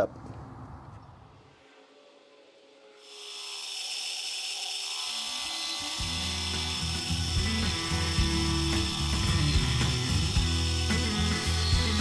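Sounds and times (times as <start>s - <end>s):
milling cutter hissing: 1.6s - 12.0s
background music with bass: 6.0s - 12.0s.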